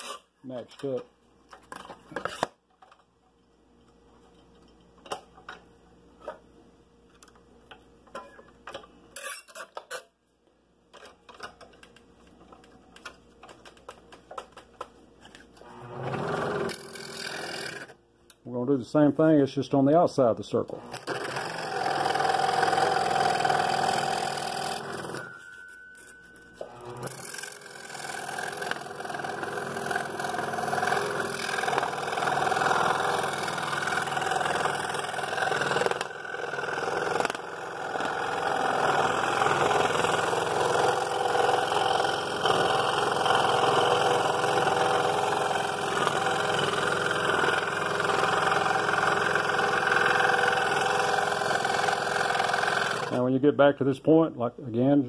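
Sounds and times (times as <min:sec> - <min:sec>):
scroll saw cutting wood: 0:15.6 - 0:18.0, 0:20.8 - 0:25.3, 0:26.6 - 0:53.2.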